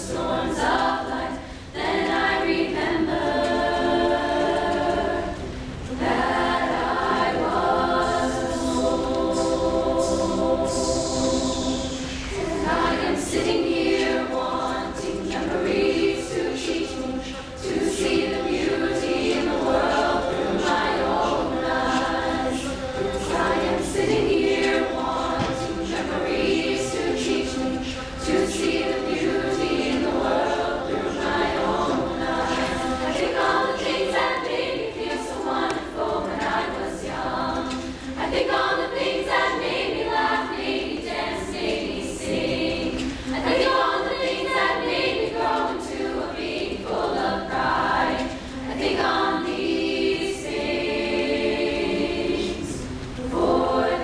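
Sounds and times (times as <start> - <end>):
choir singing a cappella: 0.0 - 54.0.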